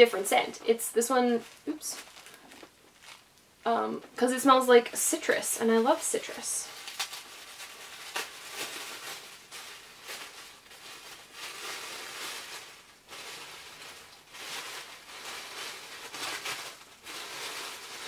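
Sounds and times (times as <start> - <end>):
tissue paper rustling and crinkling: 1.2 - 3.4, 5.2 - 18.0.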